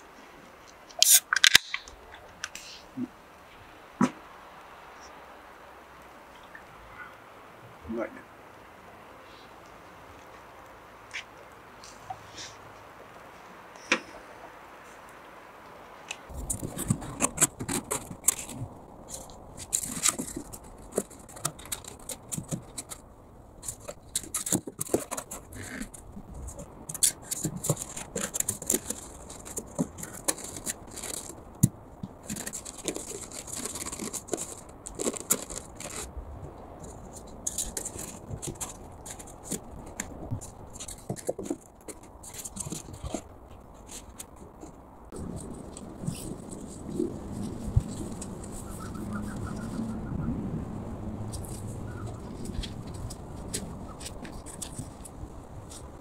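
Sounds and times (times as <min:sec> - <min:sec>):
foam boards scraping and knocking: 0:16.3 - 0:36.1, 0:36.9 - 0:48.7.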